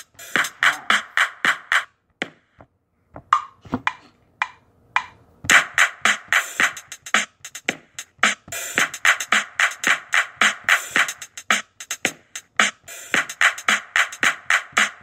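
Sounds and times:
percussive beat: 0.0 - 2.6, 3.3 - 15.0.

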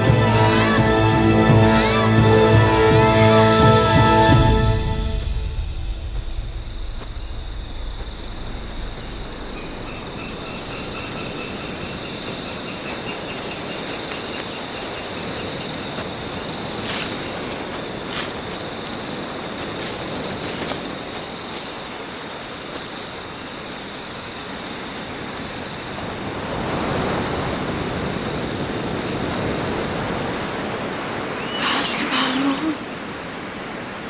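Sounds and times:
soundtrack music: 0.0 - 6.6
high trilling insects: 0.0 - 34.0
rapid pulsing insect chirp: 0.0 - 34.0.

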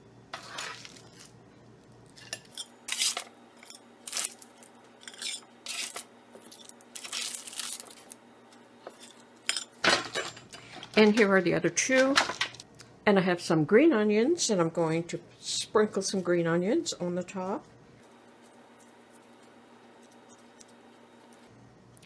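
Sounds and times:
metal spatula scraping parchment paper: 0.3 - 1.3.

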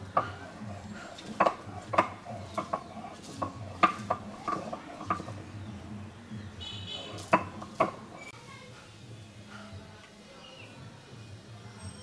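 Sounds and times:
stone roller crushing garlic: 0.0 - 5.9, 6.9 - 8.3.

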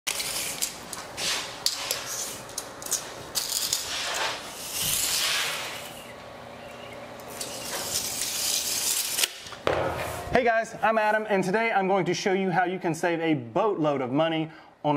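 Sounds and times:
scraping on plastic film: 0.1 - 6.0, 7.3 - 9.4.

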